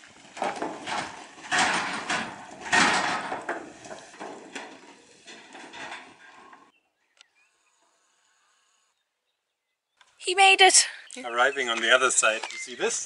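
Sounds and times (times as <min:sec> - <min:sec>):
wheels clattering over plank deck: 0:00.0 - 0:06.7.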